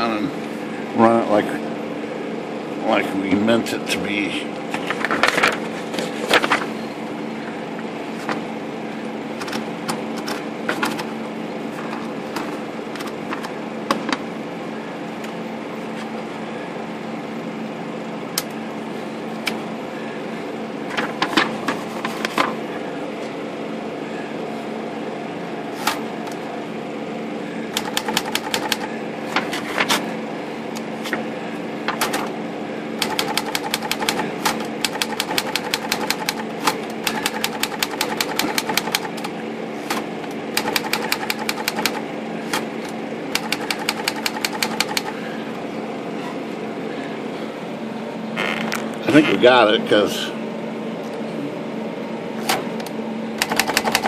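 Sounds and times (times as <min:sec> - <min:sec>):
manual typewriter typing: 0:27.7 - 0:28.9, 0:33.0 - 0:39.3, 0:40.5 - 0:42.6, 0:43.3 - 0:45.2, 0:53.4 - 0:54.0.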